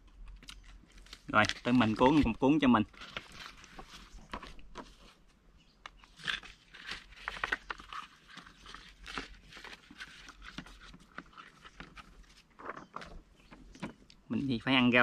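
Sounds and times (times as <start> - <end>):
rice paper crackling: 0.6 - 5.2, 6.1 - 13.2.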